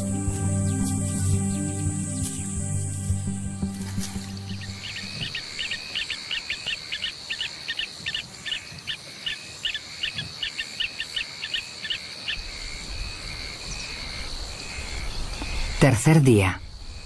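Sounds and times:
high insect trill: 0.0s - 17.0s
bird chirping rapidly: 4.5s - 12.4s.

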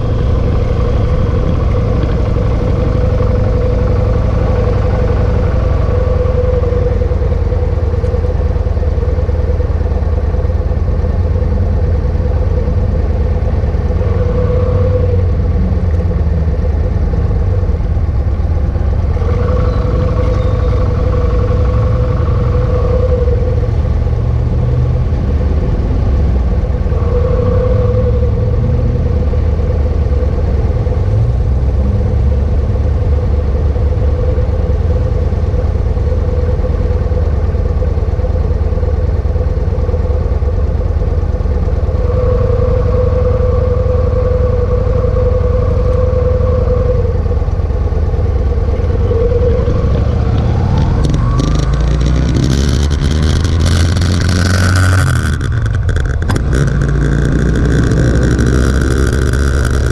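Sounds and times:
motorcycle engine idling: 0.0s - 25.8s, 29.1s - 42.5s.

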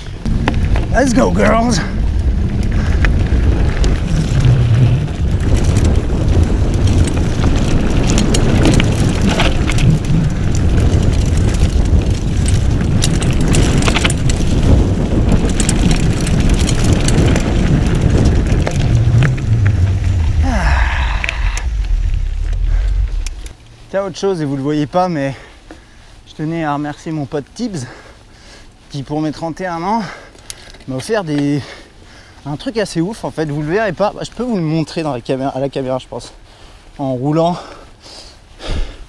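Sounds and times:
wind buffeting microphone: 0.0s - 24.2s
tyre noise on dirt: 0.0s - 28.2s
bike clicks and rattles: 0.0s - 32.1s.

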